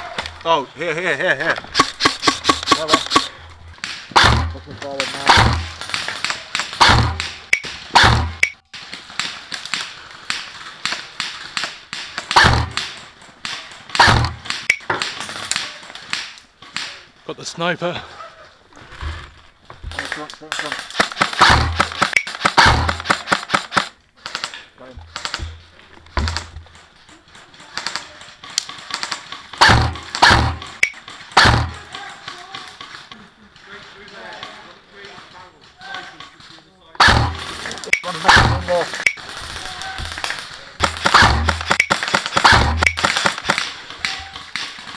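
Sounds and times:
sharp clicks: 1.6s - 4.4s, 5.3s - 7.8s, 9.2s - 16.9s, 20.8s - 24.6s, 37.0s - 39.2s, 40.0s - 44.9s
airsoft gunfire: 1.7s - 16.3s, 20.8s - 24.5s, 28.9s - 31.9s, 37.0s - 44.9s
loud close gunshots with thump: 1.8s - 4.6s, 5.2s - 8.4s, 12.3s - 12.9s, 13.9s - 15.2s, 21.0s - 23.7s, 29.6s - 30.8s, 31.4s - 31.8s, 37.0s - 39.0s, 40.1s - 43.7s
airsoft rifle shot thump: 29.6s - 30.7s.

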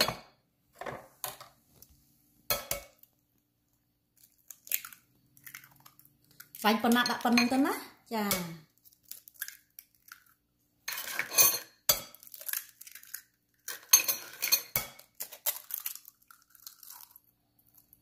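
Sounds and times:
eggshell crackle: 4.1s - 6.7s, 8.7s - 10.6s, 12.1s - 13.7s, 15.1s - 18.0s
eggs cracking on glass bowl: 4.1s - 7.4s, 8.2s - 10.5s, 11.8s - 14.0s, 14.6s - 18.0s.

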